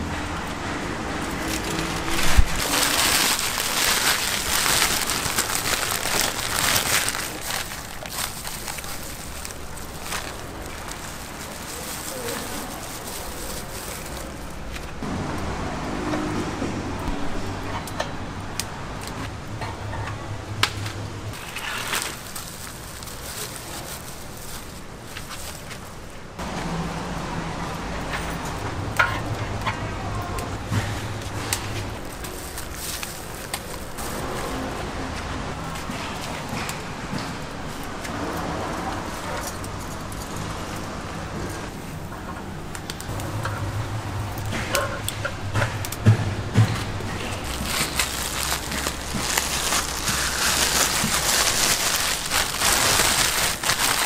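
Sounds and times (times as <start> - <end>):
steady background noise: 0.0 - 54.0
plastic bag rustling: 0.2 - 15.0, 21.3 - 26.4, 30.9 - 36.2, 44.3 - 54.0
wet chicken squishing: 47.4 - 54.0.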